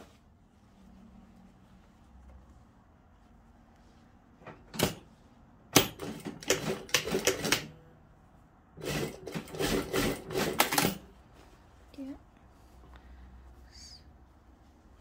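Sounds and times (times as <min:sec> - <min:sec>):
sewing machine stitching: 0:05.8 - 0:07.8, 0:08.8 - 0:11.1.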